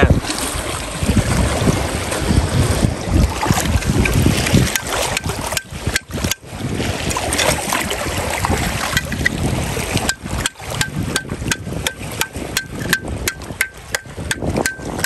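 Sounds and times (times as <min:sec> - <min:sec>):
wind and sea rushing: 0:00.0 - 0:15.0
metal chisel striking rock: 0:04.6 - 0:06.4, 0:08.9 - 0:09.4, 0:10.0 - 0:15.0.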